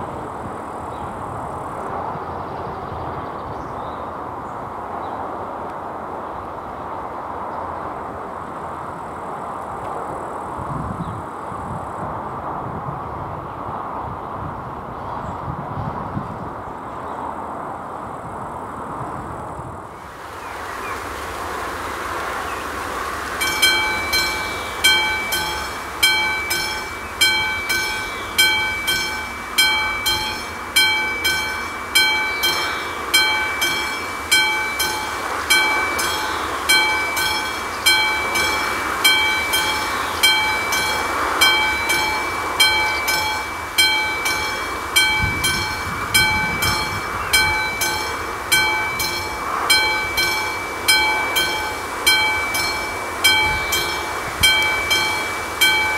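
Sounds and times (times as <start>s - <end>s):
mechanical warning bell ringing: 23.4s - 55.9s.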